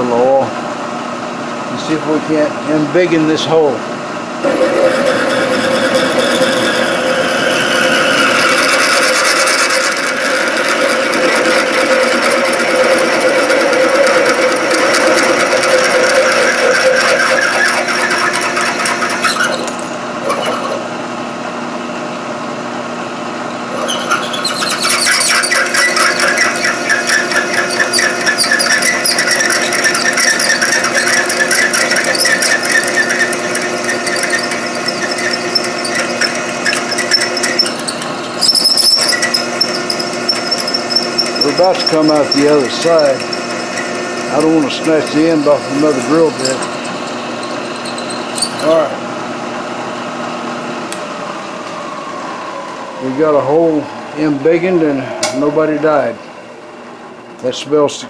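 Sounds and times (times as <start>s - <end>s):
milling machine motor hum: 0.0s - 57.5s
drill cutting metal pulsing: 4.4s - 20.7s, 23.7s - 50.1s.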